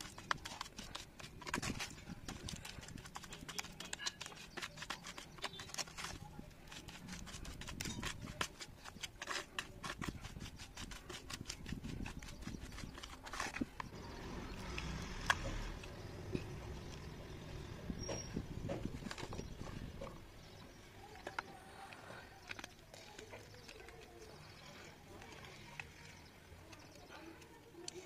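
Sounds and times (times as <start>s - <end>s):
spoon slapping wet clay: 0.0s - 14.0s.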